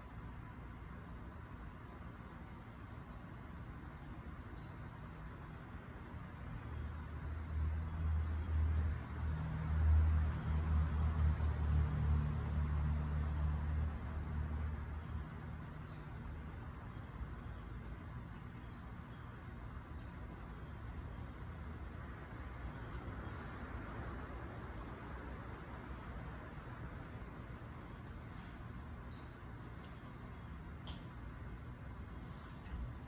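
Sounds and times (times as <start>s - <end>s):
passing vehicle engine rumble: 6.7s - 19.0s.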